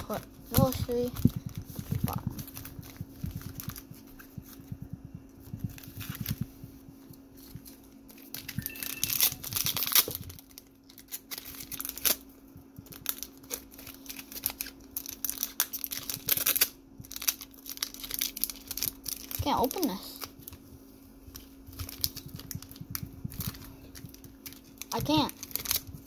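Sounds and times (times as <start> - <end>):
foil wrapper crinkling: 0.0 - 20.6, 21.2 - 26.0
faint steady hum: 0.0 - 26.0
foil tearing snaps: 7.6 - 20.6, 21.7 - 26.0.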